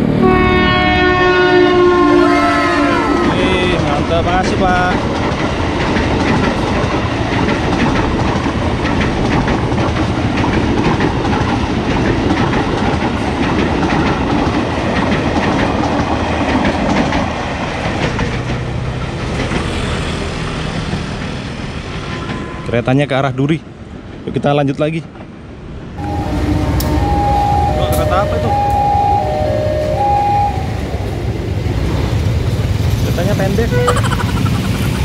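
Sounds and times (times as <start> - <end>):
electric train passing: 0.0 - 23.1, 25.4 - 35.0
wheels clacking over rail joints: 3.2 - 21.4.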